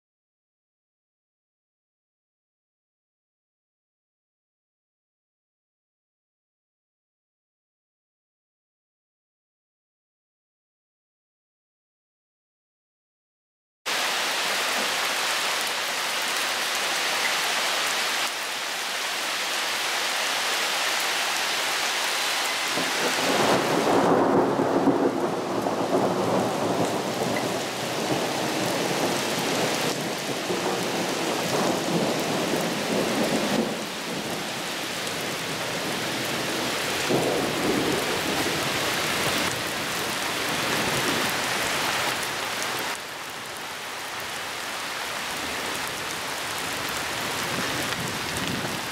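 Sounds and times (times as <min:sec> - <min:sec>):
heavy rain on leaves and paving: 0:13.9 - 0:48.9
thunder rumbling: 0:22.7 - 0:34.4.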